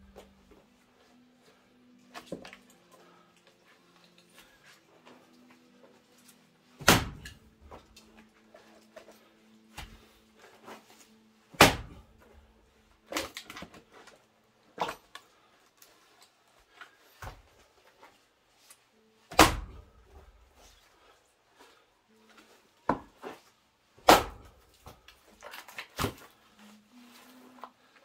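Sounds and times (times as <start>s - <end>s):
axe chopping wood: 6.8s - 7.8s, 11.5s - 12.1s, 19.3s - 19.9s, 24.0s - 25.0s.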